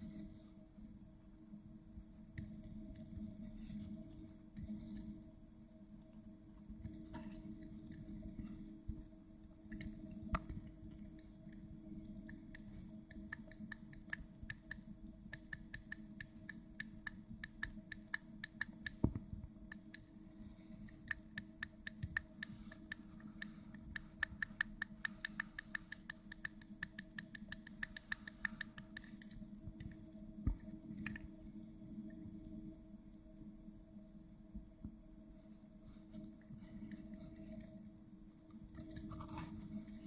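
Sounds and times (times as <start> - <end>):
steady low hum: 0.0 - 40.0
sharp plastic clicks: 21.1 - 31.2.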